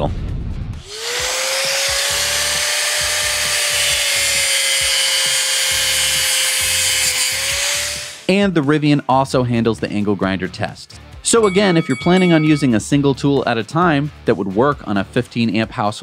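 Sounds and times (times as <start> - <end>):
angle grinder grinding metal: 0.9 - 8.3.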